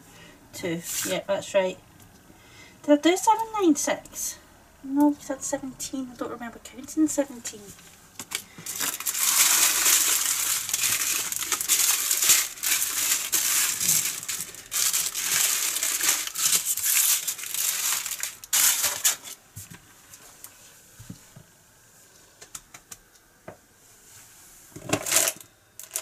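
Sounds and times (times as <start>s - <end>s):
plastic bags crinkling: 8.2s - 19.4s, 25.0s - 26.0s.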